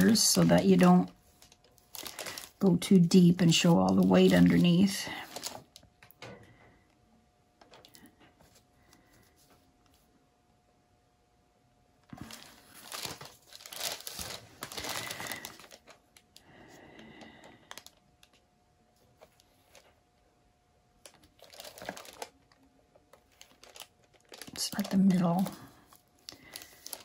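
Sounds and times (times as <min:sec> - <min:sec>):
plastic crinkling and rustling: 0:00.0 - 0:06.1, 0:12.1 - 0:16.4, 0:17.2 - 0:18.4, 0:19.1 - 0:20.0, 0:21.0 - 0:27.0.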